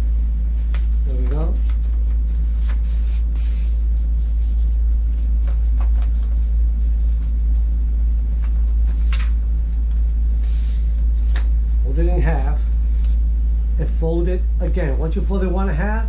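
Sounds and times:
paper rustling and crinkling: 0.5s - 13.2s.

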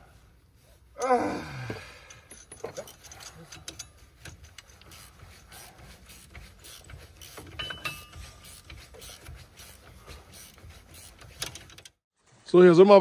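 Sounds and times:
hand tools clicking and clattering: 1.7s - 12.0s.

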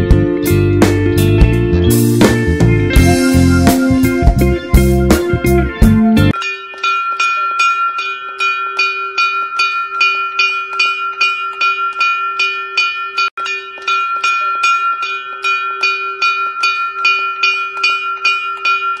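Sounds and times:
small metal bell ringing: 6.3s - 19.0s.

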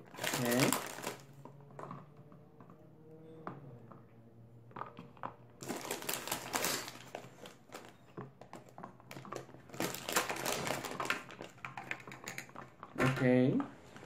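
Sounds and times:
plastic candy bag crinkling: 0.0s - 1.6s, 5.6s - 13.0s
gummy candies clicking into plastic molds: 7.1s - 13.7s.

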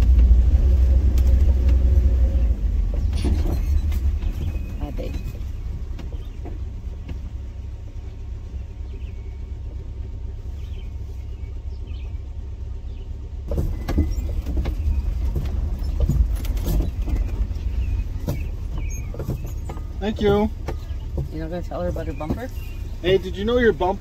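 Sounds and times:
light rattles and knocks: 0.0s - 24.0s
vehicle engine and road rumble: 0.0s - 24.0s.

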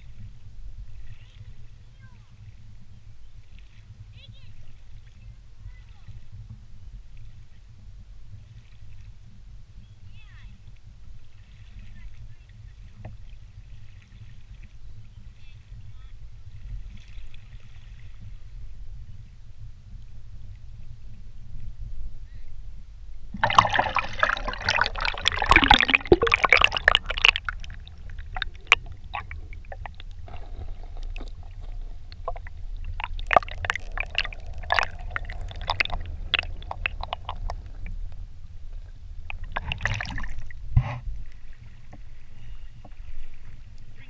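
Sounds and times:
low rumble: 21.5s - 41.5s
splashing in river: 23.4s - 38.1s, 39.2s - 40.7s
muffled underwater gurgling: 23.4s - 41.0s.

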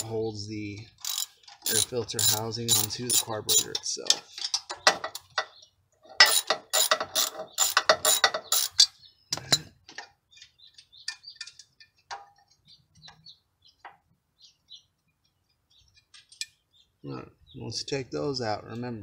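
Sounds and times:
socket wrench ratchet clicking: 1.0s - 3.7s.

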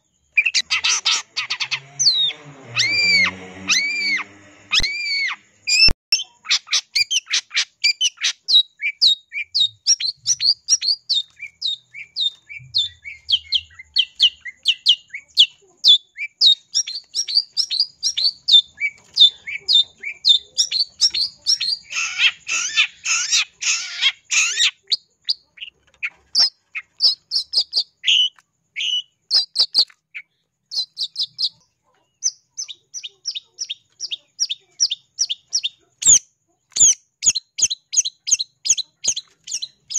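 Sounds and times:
shrike chirping: 0.0s - 31.6s
harsh rasping bird chatter: 0.0s - 39.9s.

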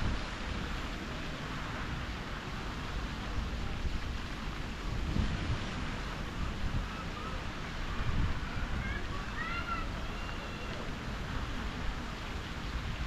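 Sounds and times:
fountain splashing into pond: 0.0s - 13.0s
wind buffeting microphone: 3.0s - 10.0s.

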